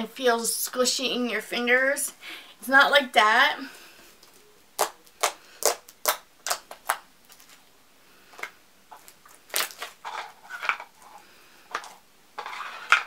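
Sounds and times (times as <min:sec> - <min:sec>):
slime popping and crackling: 0:04.8 - 0:07.6, 0:08.9 - 0:10.0.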